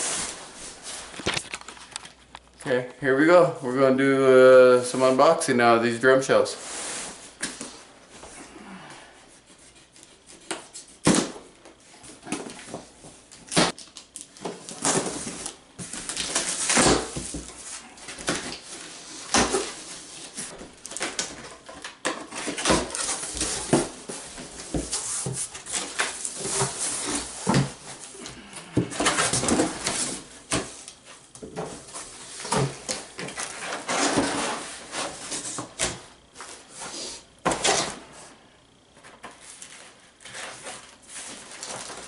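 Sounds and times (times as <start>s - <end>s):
cardboard flaps scraping and rustling: 9.6s - 38.1s, 39.0s - 42.0s.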